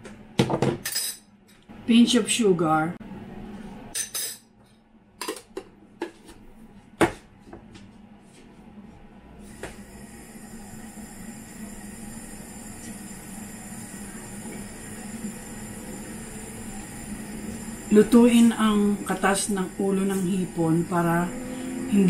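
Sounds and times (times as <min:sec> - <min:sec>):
kitchenware clinking: 0:00.5 - 0:01.6, 0:03.9 - 0:04.5.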